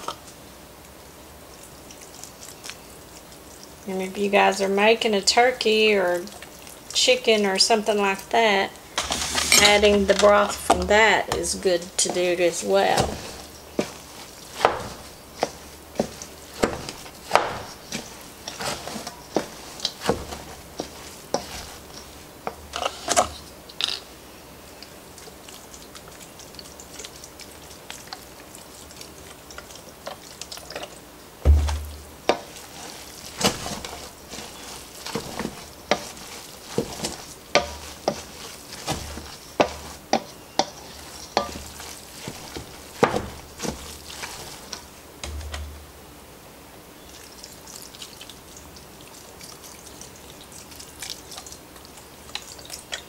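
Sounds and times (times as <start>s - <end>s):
spoon knocking and scraping bowl: 9.0s - 12.3s, 36.8s - 38.3s, 38.9s - 41.8s, 45.2s - 45.8s
dull thump: 31.4s - 32.4s, 45.2s - 45.9s.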